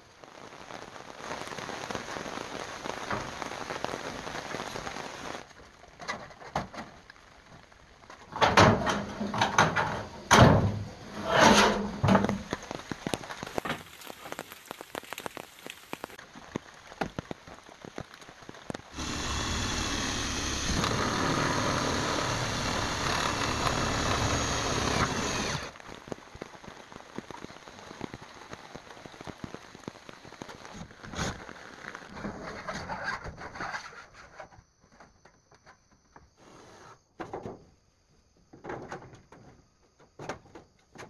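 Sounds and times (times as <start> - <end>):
light rain pattering: 0.0 - 10.3, 11.8 - 33.0
cordless drill driving screw: 19.0 - 25.7.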